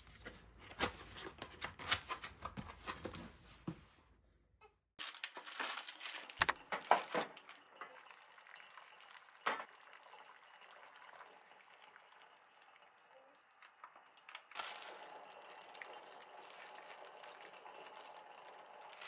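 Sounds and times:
water boiling in a saucepan: 7.1s - 19.0s.

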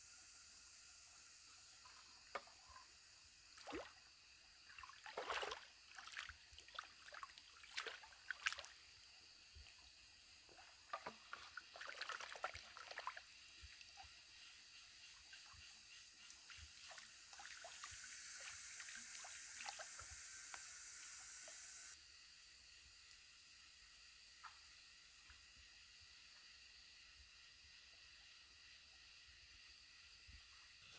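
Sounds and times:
hands splashing in water: 5.0s - 8.7s.

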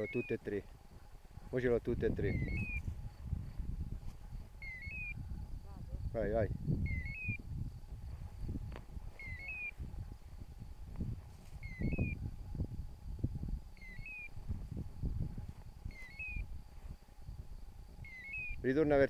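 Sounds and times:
grass rustling: 0.0s - 6.7s, 7.4s - 19.0s
wind rumble: 0.0s - 19.0s
high three-note chirp: 2.3s - 2.8s, 4.6s - 5.2s, 6.8s - 7.4s, 9.2s - 9.7s.

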